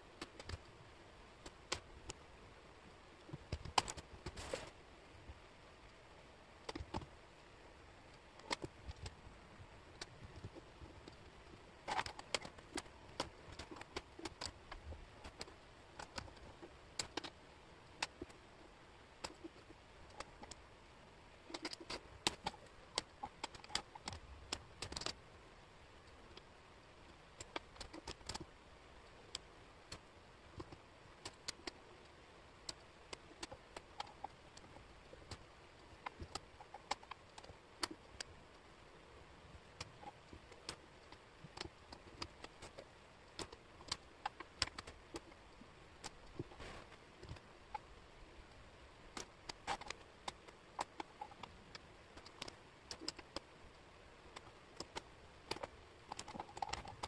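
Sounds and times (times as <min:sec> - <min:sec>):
wooden jigsaw pieces clicking: 0:00.1 - 0:00.7, 0:03.4 - 0:04.1, 0:11.8 - 0:18.4, 0:21.5 - 0:25.2, 0:27.3 - 0:28.5, 0:29.3 - 0:38.3, 0:39.8 - 0:46.5, 0:49.1 - 0:53.6, 0:54.2 - 0:57.0.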